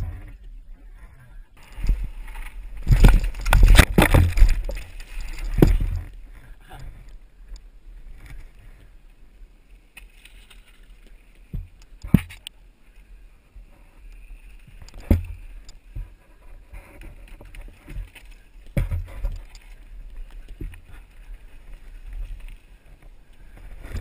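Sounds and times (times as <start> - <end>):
bike knocks and scrapes: 1.6 - 6.1, 15.0 - 19.6.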